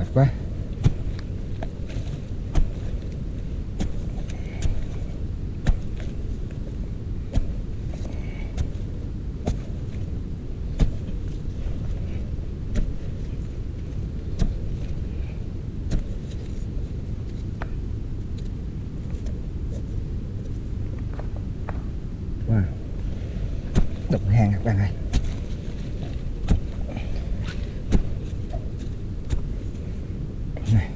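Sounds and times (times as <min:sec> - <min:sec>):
digging tool striking hard earth: 0:00.0 - 0:17.7, 0:23.6 - 0:29.8
steady low rumble: 0:00.0 - 0:30.9.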